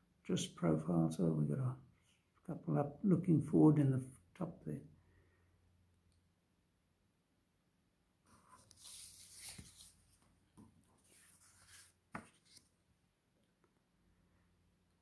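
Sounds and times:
paper rustling: 8.3 - 12.7.

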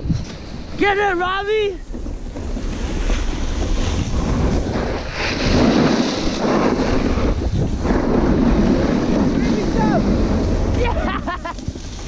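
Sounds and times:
snowboard scraping on snow: 0.0 - 12.0
wind rushing over microphone: 0.0 - 12.0.

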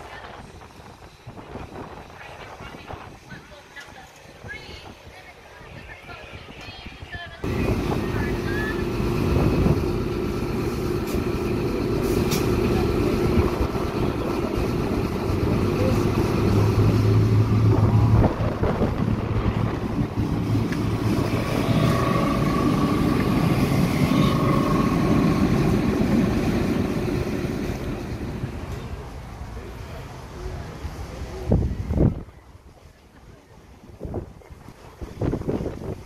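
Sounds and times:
diesel train engines droning: 7.4 - 31.5.

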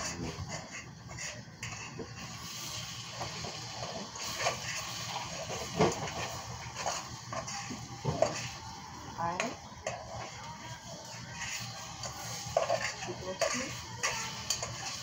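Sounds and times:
kitchen utensils clinking: 3.2 - 15.0.

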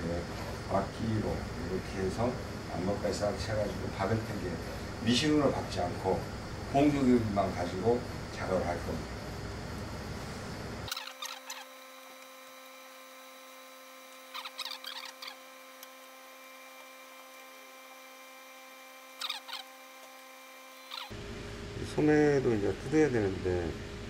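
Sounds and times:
faint steady hum: 0.0 - 24.0
shears snipping fabric: 10.9 - 12.7, 14.0 - 17.4, 19.2 - 21.1.

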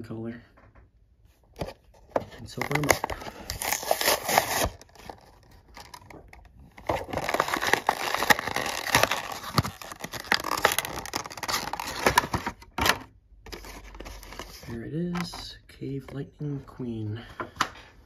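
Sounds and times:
plastic crinkling: 1.6 - 15.5
card tearing: 2.6 - 14.7.

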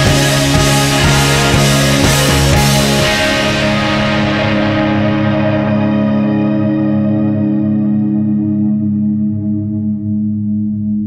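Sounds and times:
held music chord: 0.0 - 11.0.

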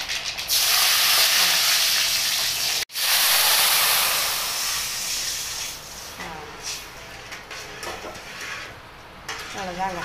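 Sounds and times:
spices sizzling in hot oil: 0.0 - 6.9
liquid hissing in hot oil: 0.3 - 6.9.

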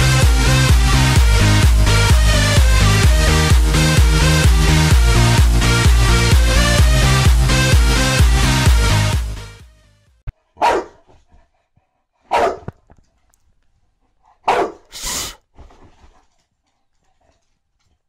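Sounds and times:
electronic dance music: 0.0 - 9.8
dog barking: 10.6 - 11.1, 12.3 - 12.8, 14.4 - 14.9.

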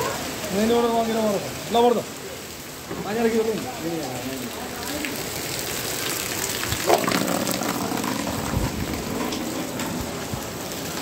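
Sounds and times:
heavy rain and hail: 0.0 - 11.0.

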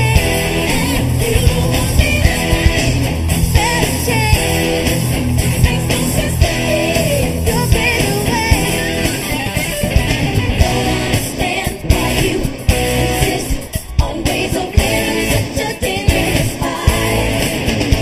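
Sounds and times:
electric guitar: 0.0 - 18.0
live rock band music: 0.0 - 18.0
singing: 10.6 - 17.7.

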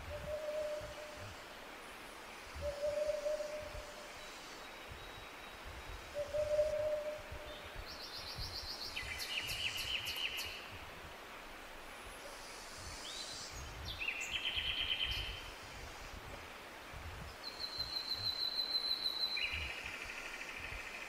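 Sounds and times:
low hooting bird call: 0.1 - 1.2, 2.6 - 4.1, 6.1 - 7.4.

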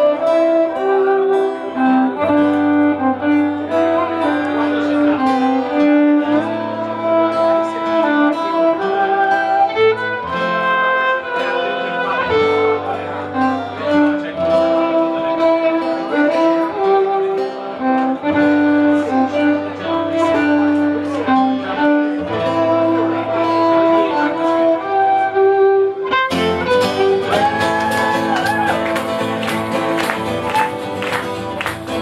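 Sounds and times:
violin playing melody: 0.0 - 31.7
acoustic guitar accompaniment: 0.0 - 32.0.

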